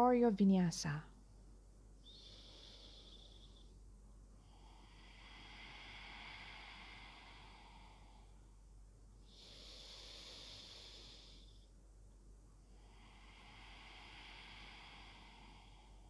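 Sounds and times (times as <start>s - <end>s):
slow breathing through nose: 2.0s - 3.8s, 4.4s - 11.8s, 12.7s - 16.0s.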